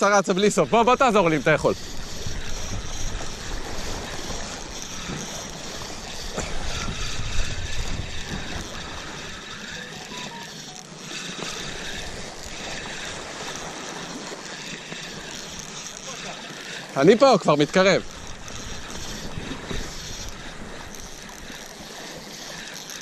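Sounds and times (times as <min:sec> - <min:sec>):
wind buffeting microphone: 0:00.0 - 0:10.0, 0:17.7 - 0:21.5
waves washing against rocks: 0:00.0 - 0:23.0.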